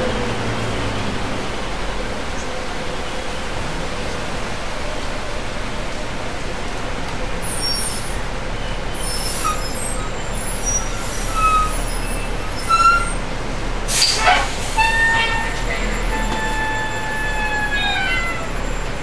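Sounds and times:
bus running noise: 0:00.0 - 0:19.0
high brake squeal: 0:07.4 - 0:13.3, 0:13.9 - 0:19.0
air brake hiss: 0:13.9 - 0:15.0.

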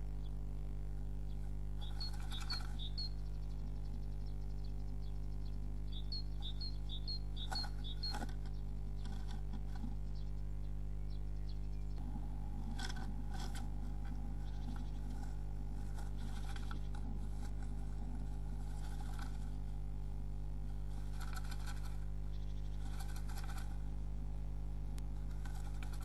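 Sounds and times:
electrical mains hum: 0:00.0 - 0:26.0
bird scraping nest material: 0:01.5 - 0:03.1, 0:07.4 - 0:10.1, 0:12.0 - 0:24.1, 0:25.1 - 0:26.0.

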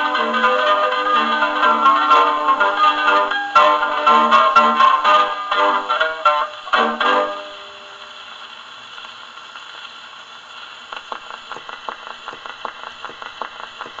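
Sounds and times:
record surface hiss: 0:00.0 - 0:14.0
needle clicking in run-out groove: 0:10.9 - 0:14.0.

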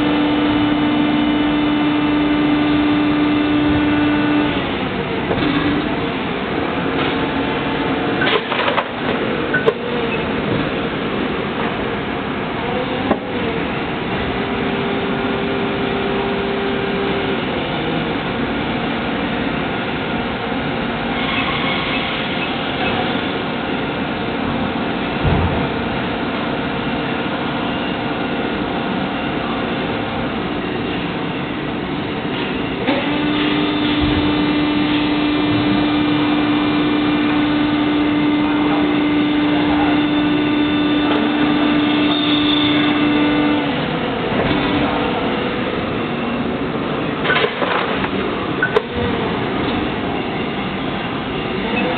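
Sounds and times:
machine mechanical drone: 0:00.0 - 0:51.9
strong steady hum: 0:00.0 - 0:51.9
machine thump: 0:25.2 - 0:25.9.

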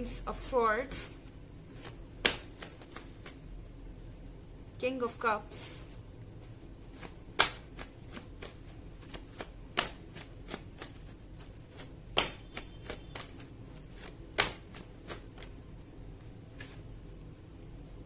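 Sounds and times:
cards shuffled by hand: 0:01.7 - 0:03.4, 0:06.4 - 0:15.6, 0:16.5 - 0:17.0
card snaps: 0:01.8 - 0:03.4, 0:07.0 - 0:11.0, 0:11.7 - 0:15.5.

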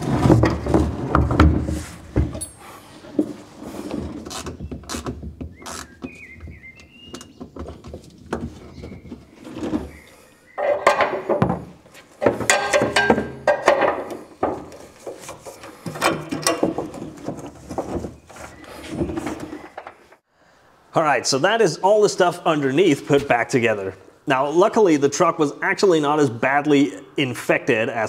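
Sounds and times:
hand tools clicking and scraping: 0:00.0 - 0:06.2, 0:07.1 - 0:20.2
metal clattering: 0:10.6 - 0:20.2.

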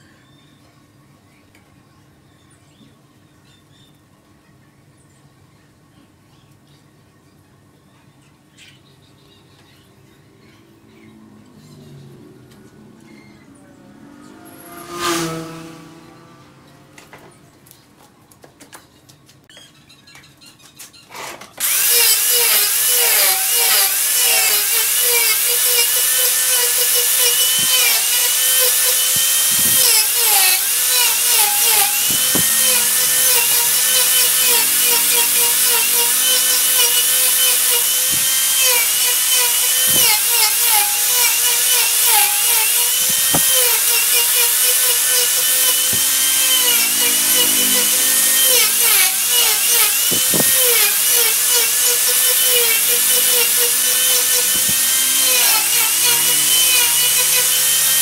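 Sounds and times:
angle grinder whining: 0:12.6 - 0:17.3, 0:21.6 - 0:58.0.

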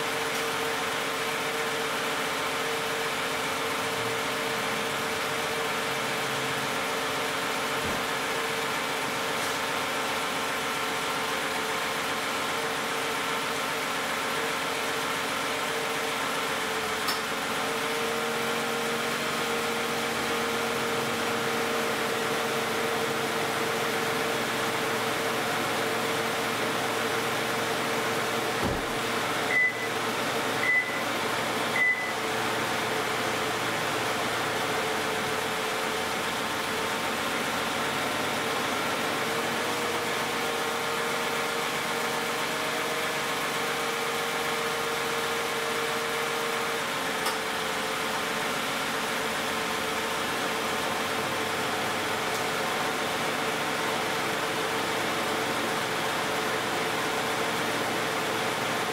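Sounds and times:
car engine idling: 0:00.1 - 0:39.7
car door thudding shut: 0:28.6 - 0:29.0
short high beeps: 0:29.5 - 0:30.0, 0:30.6 - 0:31.0, 0:31.8 - 0:32.2.

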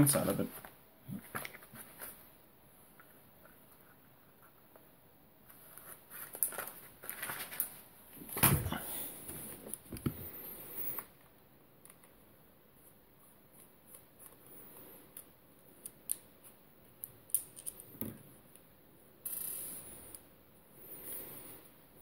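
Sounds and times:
plastic headphones handling: 0:00.1 - 0:02.3, 0:02.9 - 0:12.2.

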